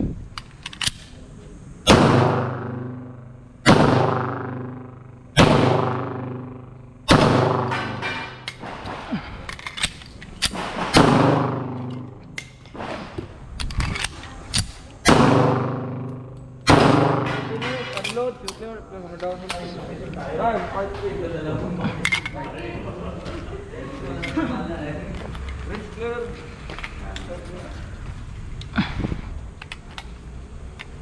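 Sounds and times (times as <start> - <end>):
pistol shots with echo: 1.9 - 8.9, 10.5 - 12.6, 15.0 - 18.2.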